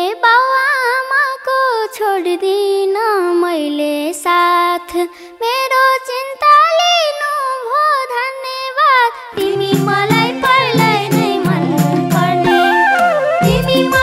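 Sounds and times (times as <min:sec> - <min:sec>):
girl singing folk melody: 0:00.0 - 0:14.0.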